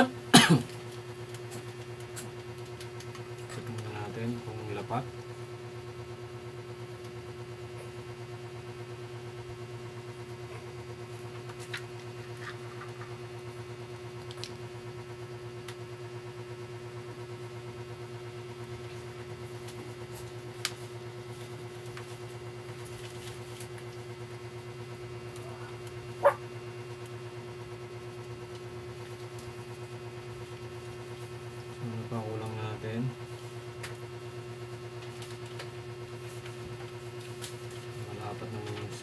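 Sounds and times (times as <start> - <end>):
electrical machine hum: 0.0 - 39.0.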